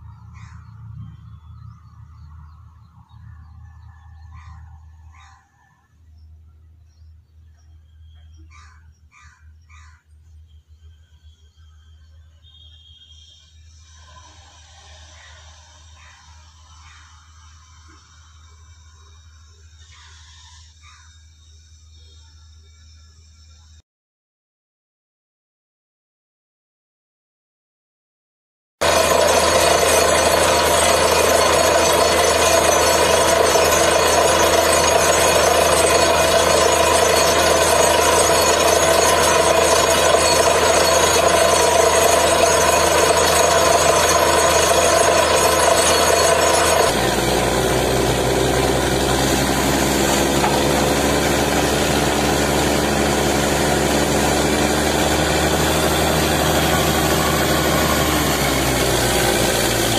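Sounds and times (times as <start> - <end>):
drilling rig engine running: 28.8 - 59.9.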